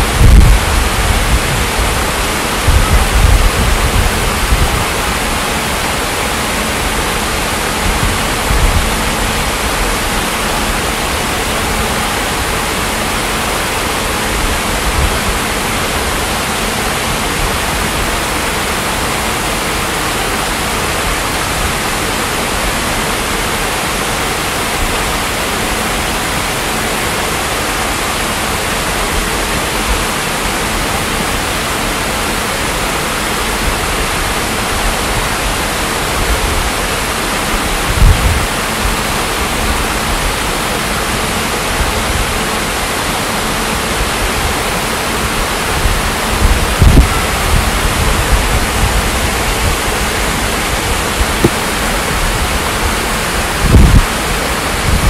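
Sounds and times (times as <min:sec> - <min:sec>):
water splashing over rocks: 0:00.0 - 0:55.0.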